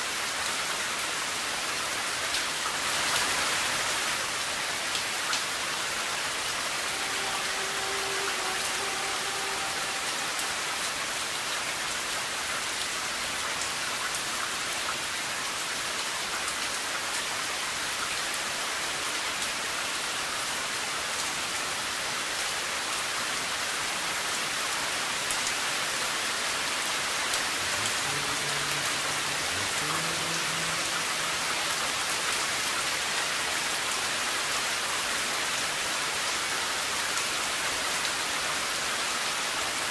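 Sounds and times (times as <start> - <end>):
heavy rain pouring: 0.0 - 39.9.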